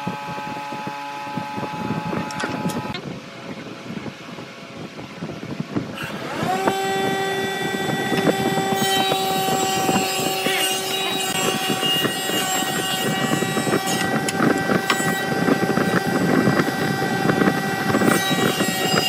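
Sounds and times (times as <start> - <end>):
electric motor whining: 5.9 - 19.0.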